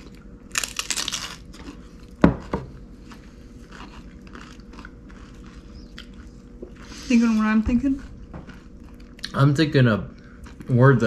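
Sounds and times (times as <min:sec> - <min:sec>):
crunchy chips being chewed: 0:00.0 - 0:02.2, 0:03.0 - 0:06.9, 0:07.8 - 0:09.5.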